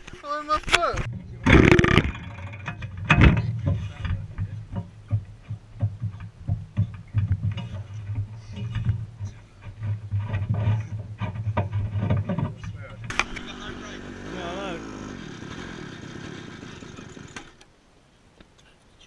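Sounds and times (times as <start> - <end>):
small two-stroke engine idling: 13.1 - 17.6.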